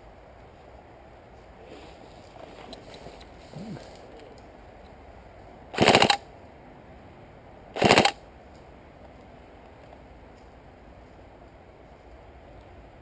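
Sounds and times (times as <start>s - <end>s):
airsoft rifle bursts: 5.8s - 6.2s, 7.8s - 8.2s.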